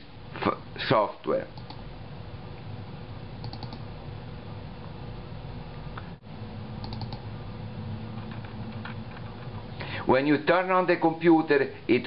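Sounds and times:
steady low hum: 0.0s - 12.0s
computer mouse clicking: 1.6s - 1.8s, 3.4s - 3.9s, 6.8s - 7.3s.

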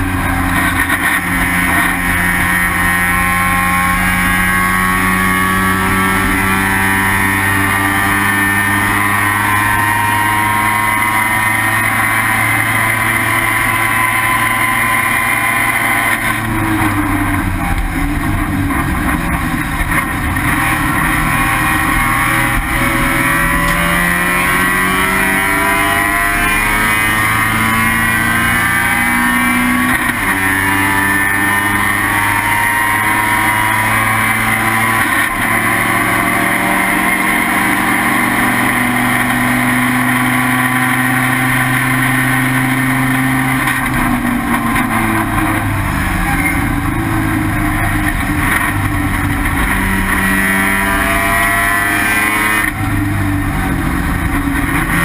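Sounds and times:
race car rotary engine revving: 0.0s - 55.0s.

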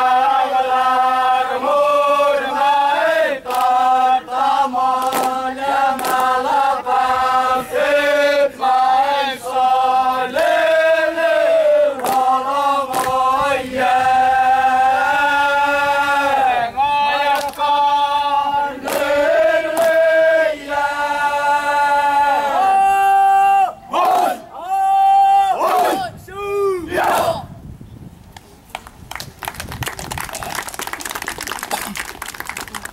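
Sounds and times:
dancers chanting in unison: 26.9s - 27.5s.

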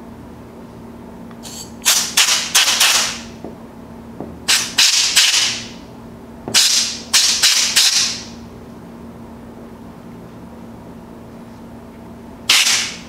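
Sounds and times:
compressed air hissing bursts: 1.4s - 2.0s.

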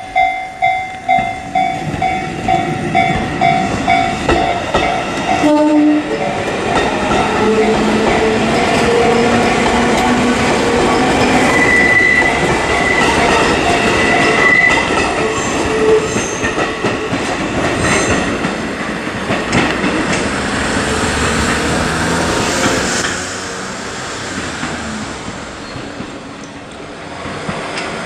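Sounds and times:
wheels rumbling over rails: 1.0s - 28.0s
clacks over rail joints: 3.0s - 5.5s, 6.4s - 11.3s, 15.9s - 20.5s
high wheel squeal: 7.1s - 16.6s, 20.8s - 26.0s.

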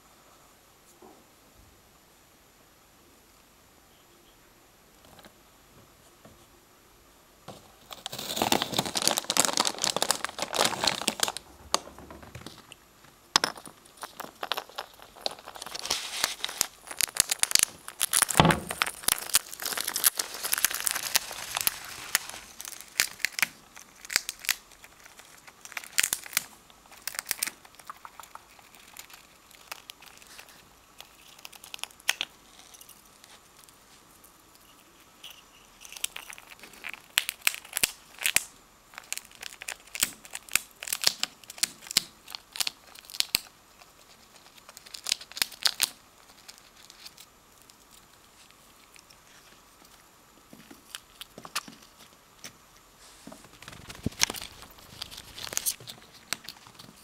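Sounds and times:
plastic bag crinkling: 7.5s - 12.8s, 13.4s - 33.7s, 53.2s - 57.0s.

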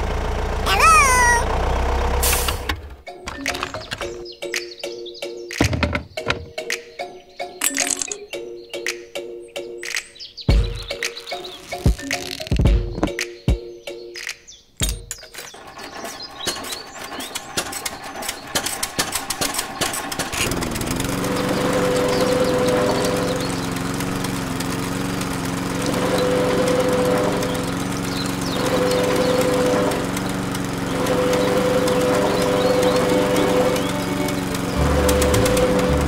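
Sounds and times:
toy engine humming: 0.6s - 1.6s, 20.2s - 36.0s
rapid clatter of clicks: 15.2s - 26.8s
juicer rollers whining: 15.6s - 36.0s.

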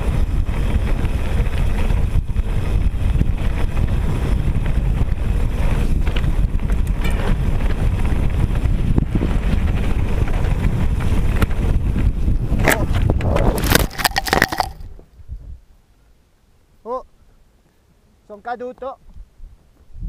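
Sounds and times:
tyres rumbling on gravel: 0.0s - 15.0s
wind buffeting microphone: 0.0s - 15.7s, 19.0s - 20.0s
bike clicks and knocks: 5.8s - 8.6s, 9.5s - 15.0s.

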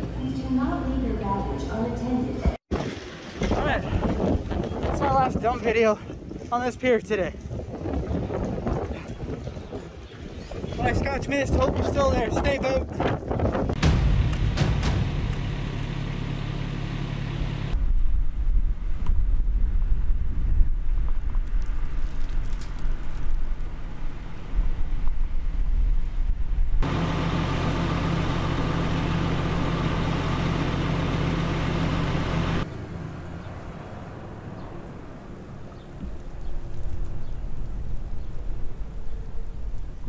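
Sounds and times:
steady engine hum: 13.2s - 21.1s, 23.0s - 40.0s.

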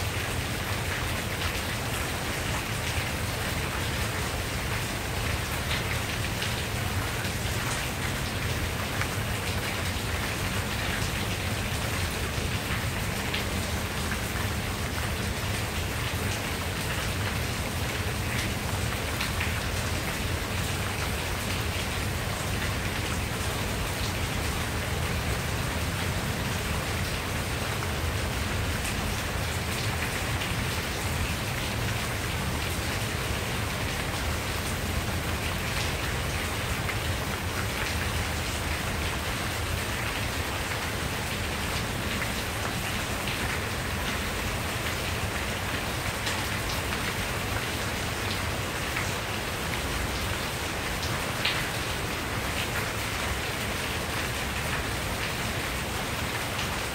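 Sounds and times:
rain falling on leaves: 0.0s - 56.9s.

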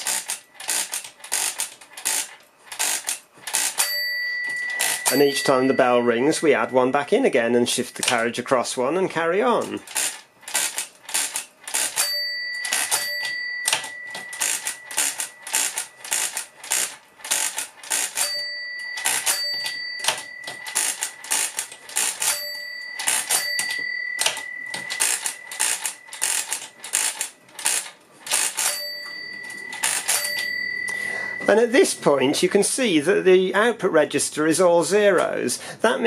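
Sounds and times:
calculator bell ringing: 0.0s - 8.6s, 9.9s - 32.6s
calculator handle clattering: 9.8s - 31.5s.

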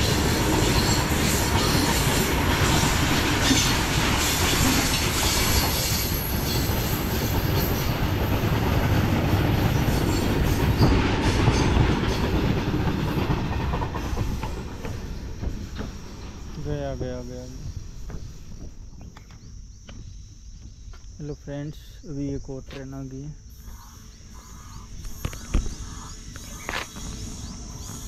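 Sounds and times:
train wheels running on rails: 0.0s - 21.2s, 23.5s - 28.0s.

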